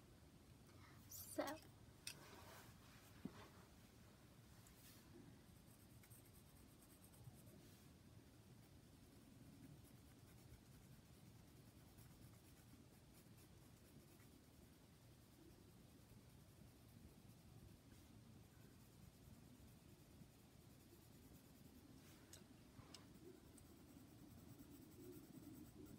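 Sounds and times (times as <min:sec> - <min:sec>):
pencil shading on paper: 0:05.4 - 0:07.6, 0:08.5 - 0:21.9, 0:23.0 - 0:25.9.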